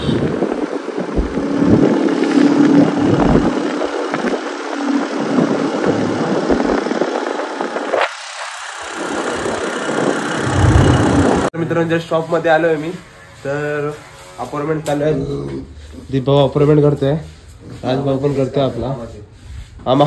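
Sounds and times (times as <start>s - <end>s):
motorbike engine running: 0.0s - 11.5s
wind and road noise: 0.0s - 11.5s.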